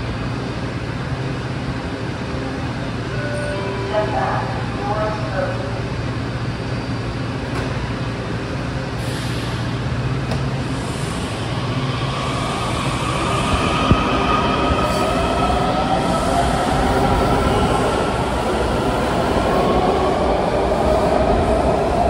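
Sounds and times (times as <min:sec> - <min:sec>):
subway train hum: 0:00.0 - 0:22.0.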